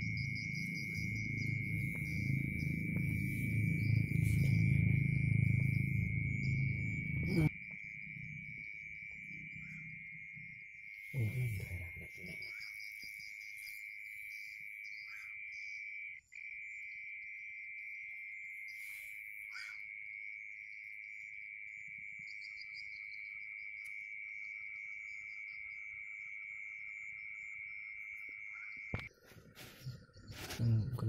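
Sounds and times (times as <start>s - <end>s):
low pulsing trill: 0.0s - 7.5s
high insect chirps: 0.0s - 30.8s
cricket trill: 0.0s - 31.0s.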